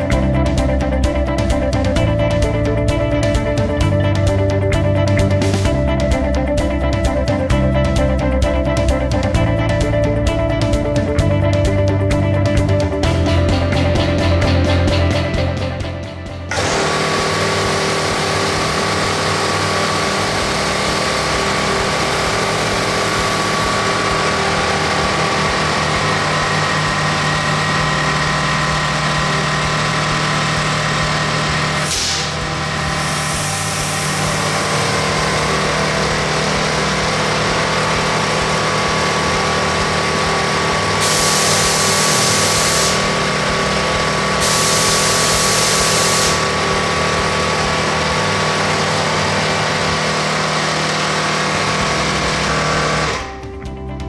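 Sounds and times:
air compressor running: 0.0 - 53.8
bursts of hissing air: 31.8 - 34.3, 41.0 - 43.2, 44.4 - 46.5.

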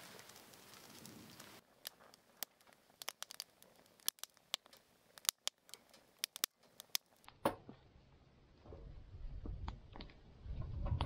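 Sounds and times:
campfire crackling and popping: 0.0 - 7.3.

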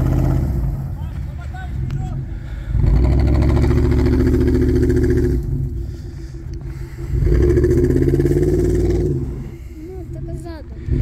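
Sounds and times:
truck engine revving hard: 0.0 - 1.0, 2.7 - 5.8, 7.1 - 9.5.

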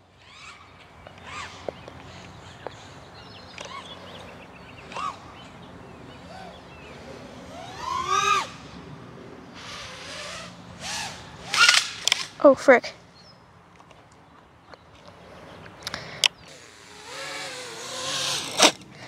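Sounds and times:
drone motors whining: 0.0 - 12.1, 16.0 - 19.0.

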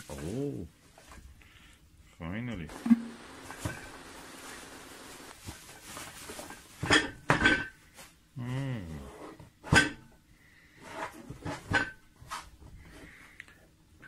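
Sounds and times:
low voice hum: 0.0 - 0.8, 8.4 - 9.3
bubble wrap unwrapping: 3.2 - 6.8.

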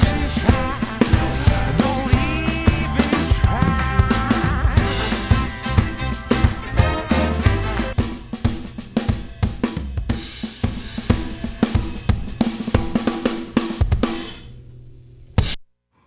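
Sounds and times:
bass and guitar: 0.0 - 8.0
compressed drums: 0.0 - 14.8.

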